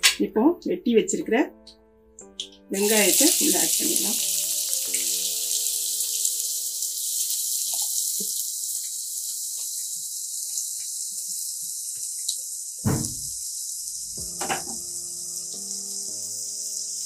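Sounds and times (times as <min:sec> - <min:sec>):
onions sizzling in oil: 0:02.7 - 0:17.0
knocks on pan: 0:12.8 - 0:13.3, 0:14.2 - 0:14.8.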